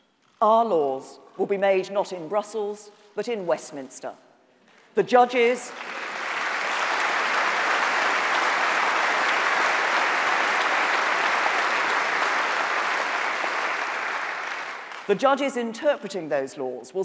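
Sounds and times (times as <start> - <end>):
audience applauding: 5.6 - 15.1.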